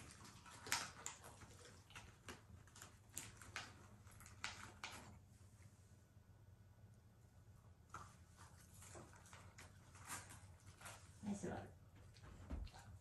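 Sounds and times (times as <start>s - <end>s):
dogs taking treats clicks and smacks: 0.0s - 5.2s.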